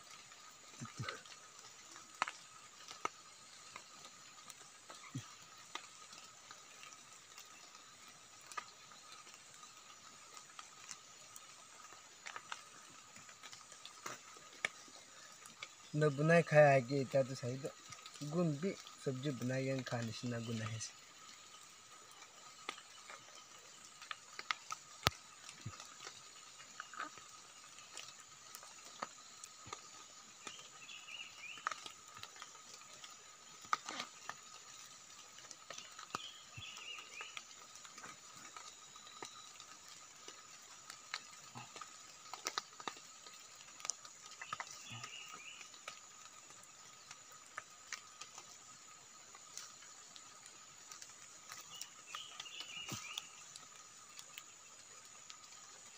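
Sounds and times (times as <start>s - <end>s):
insects droning: 0.0s - 55.9s
bird chirps: 29.8s - 31.8s, 35.7s - 37.6s, 44.4s - 45.8s, 51.5s - 53.6s.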